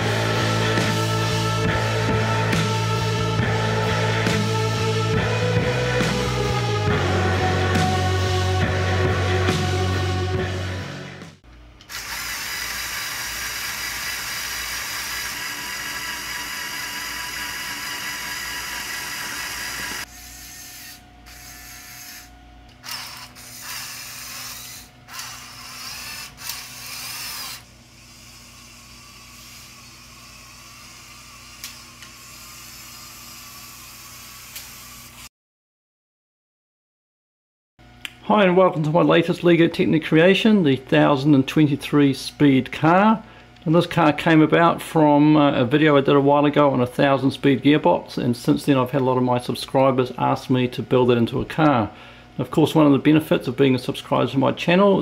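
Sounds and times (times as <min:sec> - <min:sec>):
toy car motors whirring: 0:11.9 - 0:35.3.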